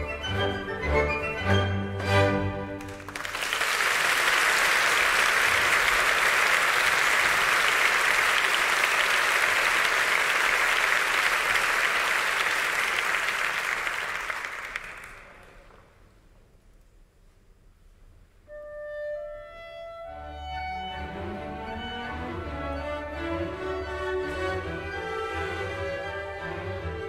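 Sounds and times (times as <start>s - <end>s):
audience applauding: 2.8s - 15.8s.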